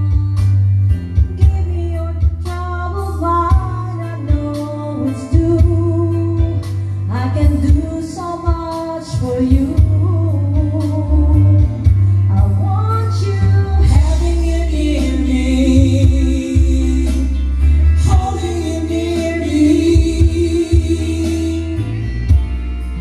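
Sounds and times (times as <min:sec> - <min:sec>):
karaoke backing track: 0:00.0 - 0:23.0
woman singing into microphone: 0:00.0 - 0:23.0.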